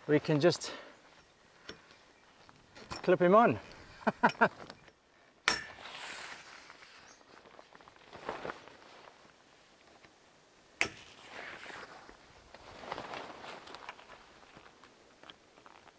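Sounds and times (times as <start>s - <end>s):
heavy canvas rustling: 12.6s - 13.9s.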